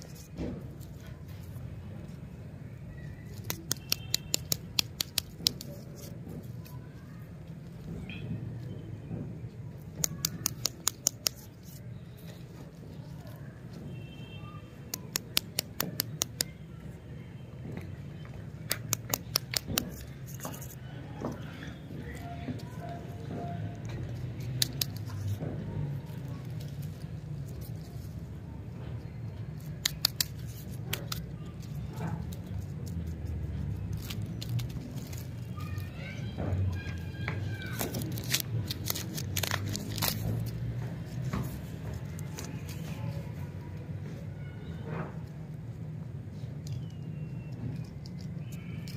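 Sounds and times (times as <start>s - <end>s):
quick sharp clicks on plastic wrapper: 18.6s - 20.1s
wrapper crinkling and tearing: 29.6s - 36.0s, 36.7s - 43.2s.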